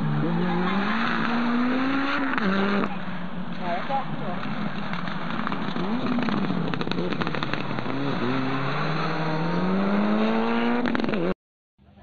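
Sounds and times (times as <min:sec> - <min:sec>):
rally car engine accelerating: 0:00.0 - 0:03.0, 0:04.4 - 0:11.3
sharp engine crackles: 0:04.1 - 0:11.3.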